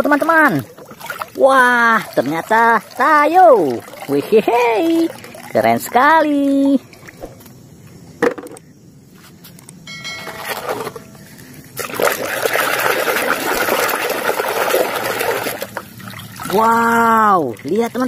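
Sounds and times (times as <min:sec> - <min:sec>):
knocks: 0:08.2 - 0:08.6
toy car splashing in water: 0:11.8 - 0:18.0.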